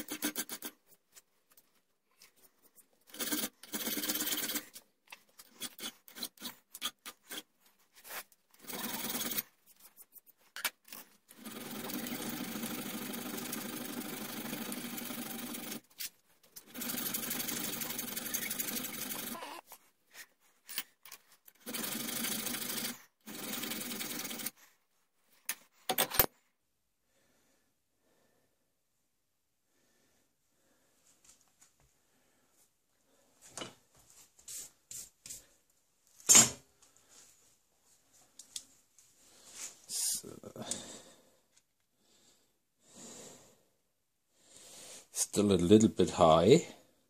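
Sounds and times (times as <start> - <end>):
hand file rasping on steel: 0.0 - 0.9, 5.4 - 7.5.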